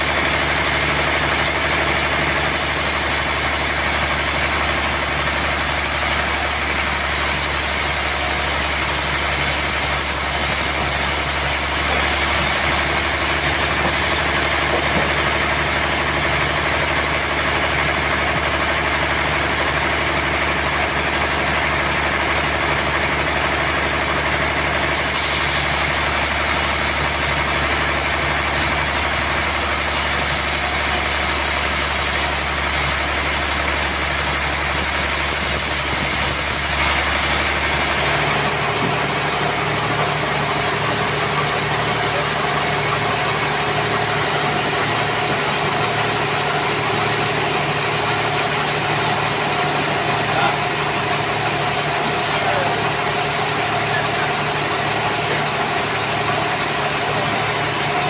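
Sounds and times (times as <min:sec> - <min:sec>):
band saw blade hissing: 0:02.4 - 0:12.7, 0:24.9 - 0:38.8
motor humming: 0:24.8 - 0:58.0.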